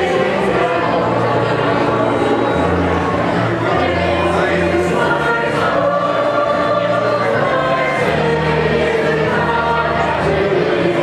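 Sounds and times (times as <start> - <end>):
mixed choir singing: 0.0 - 11.0.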